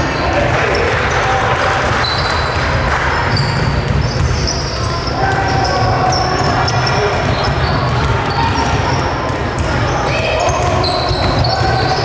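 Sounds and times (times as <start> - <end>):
sneakers squeaking: 0.0 - 12.0.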